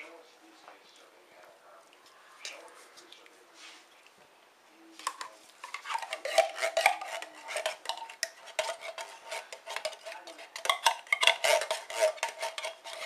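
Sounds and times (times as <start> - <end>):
metal spoon scraping a metal pot: 5.1 - 13.0.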